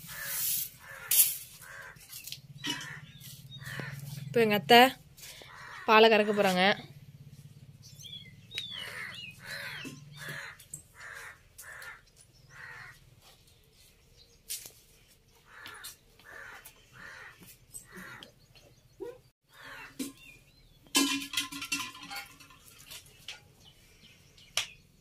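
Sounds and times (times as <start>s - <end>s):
birds cawing: 0.0s - 4.3s, 5.3s - 6.6s, 7.8s - 13.1s, 15.4s - 20.3s.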